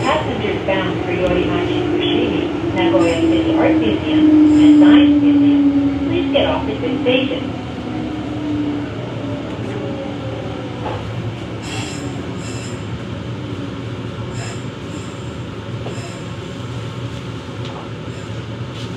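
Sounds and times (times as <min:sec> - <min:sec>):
subway train rumble: 0:00.0 - 0:18.9
high squeals of train brakes: 0:11.6 - 0:12.9, 0:14.3 - 0:16.3.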